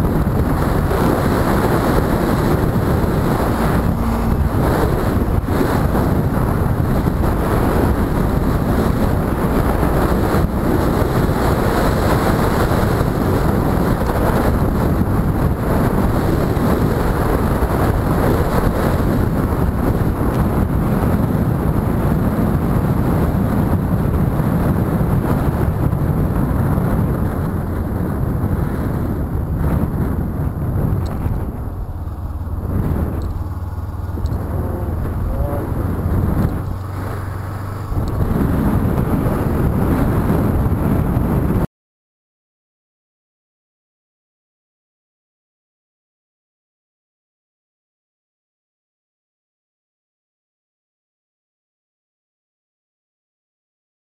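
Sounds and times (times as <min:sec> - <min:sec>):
motorcycle running: 0:00.0 - 0:41.6
wind roaring on microphone: 0:00.0 - 0:41.7.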